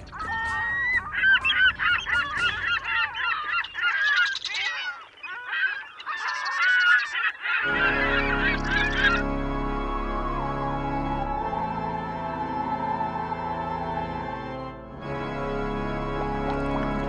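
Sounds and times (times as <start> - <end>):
soft ambient music: 0.0 - 4.4, 7.6 - 17.0
flock of birds calling: 0.0 - 9.6.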